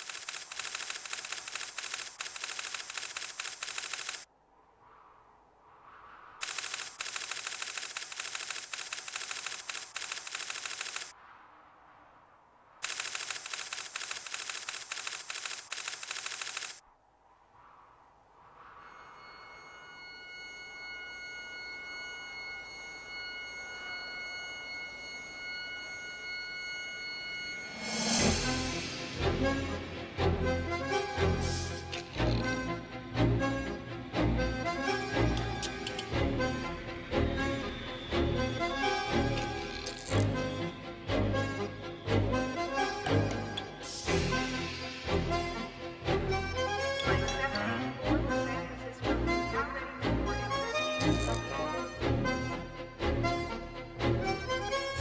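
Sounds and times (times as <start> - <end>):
teletype typing clatter: 0.0 - 4.3, 6.4 - 11.1, 12.8 - 16.8
eerie electronic drone: 18.7 - 55.0.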